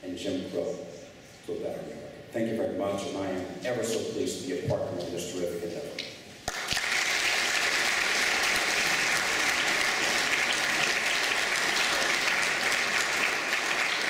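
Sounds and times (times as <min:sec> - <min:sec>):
audience applauding: 0:06.5 - 0:14.0.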